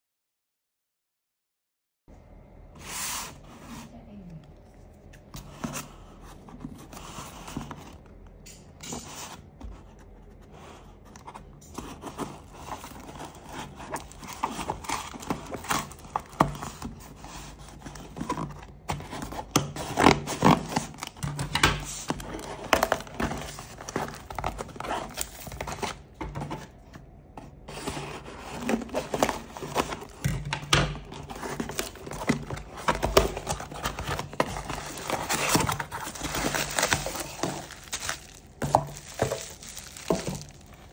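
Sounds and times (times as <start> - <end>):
cardboard tearing by hand: 31.1 - 40.9.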